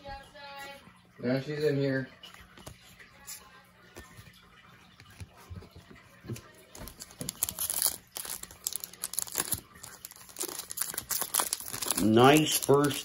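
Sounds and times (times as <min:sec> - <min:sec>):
foil wrapper crinkling: 0:06.7 - 0:13.0.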